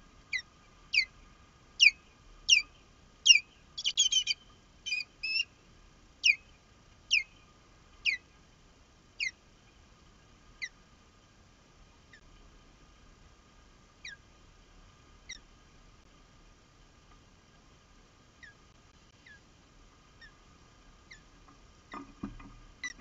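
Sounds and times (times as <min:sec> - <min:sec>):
osprey calling: 0:00.3 - 0:01.2, 0:01.8 - 0:05.6, 0:06.2 - 0:08.3, 0:09.2 - 0:09.4, 0:14.0 - 0:14.3, 0:18.4 - 0:18.6, 0:19.2 - 0:19.4, 0:20.2 - 0:20.4, 0:21.1 - 0:21.3, 0:21.9 - 0:23.0.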